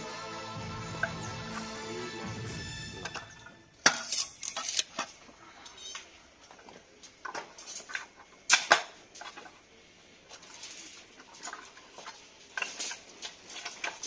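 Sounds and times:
background music: 0:00.0 - 0:03.9
metal rods clinking: 0:02.9 - 0:09.5.

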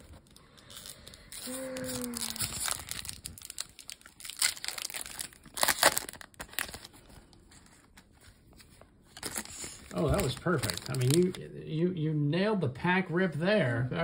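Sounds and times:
foil wrapper crinkling and tearing: 0:00.0 - 0:08.2, 0:09.1 - 0:11.5
wrapper and cards rustling: 0:00.0 - 0:11.5.

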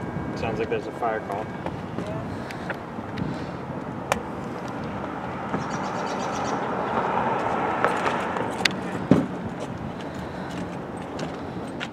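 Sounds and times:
motor vehicle running: 0:00.0 - 0:11.9
heavy thump: 0:09.0 - 0:09.4.

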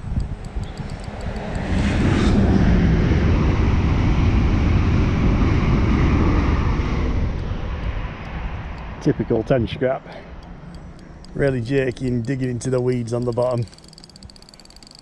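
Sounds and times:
aircraft engine drone: 0:00.0 - 0:14.2.

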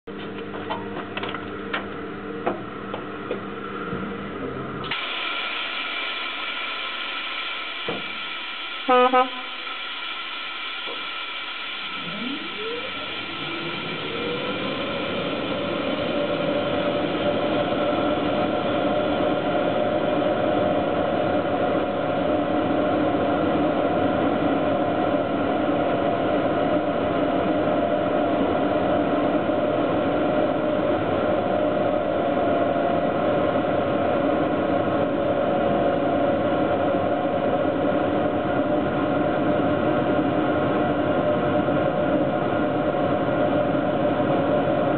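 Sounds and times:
electric locomotive whine: 0:00.1 - 0:44.9
hum: 0:01.7 - 0:39.8
hiss: 0:04.9 - 0:20.8.

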